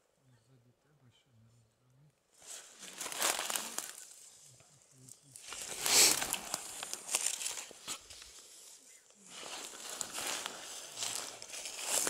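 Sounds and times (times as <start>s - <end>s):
footsteps on dry leaves: 2.4s - 4.3s, 5.4s - 12.0s.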